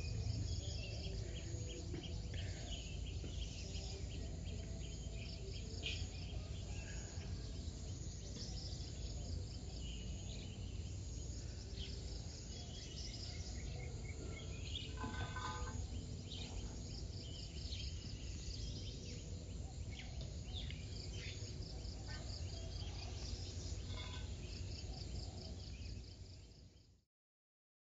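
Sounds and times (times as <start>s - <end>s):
birds chirping and calling: 9.9s - 26.0s.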